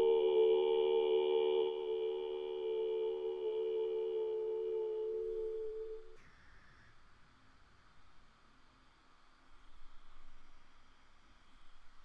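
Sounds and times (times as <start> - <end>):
person chanting a held tone: 0.0 - 6.2.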